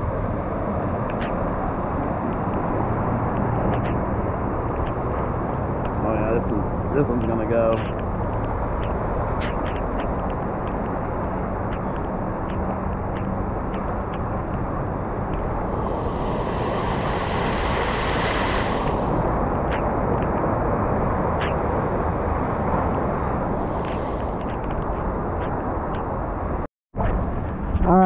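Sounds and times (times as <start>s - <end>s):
water churning: 15.6s - 19.7s, 23.4s - 25.0s
hiss of water spray: 15.6s - 19.8s, 23.4s - 25.1s.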